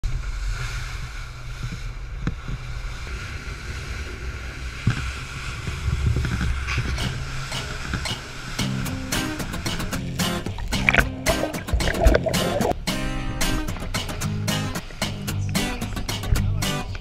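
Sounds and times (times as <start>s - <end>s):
wind: 0.0s - 17.0s
hull thumping on waves: 0.9s - 15.2s
rushing water: 2.6s - 16.2s.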